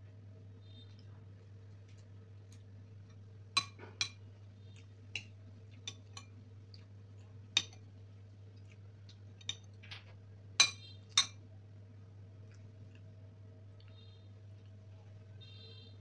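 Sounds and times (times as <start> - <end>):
spoon clinking against ceramic: 3.6 - 4.2, 5.2 - 6.3, 7.6 - 7.8, 9.4 - 9.7, 10.6 - 11.4.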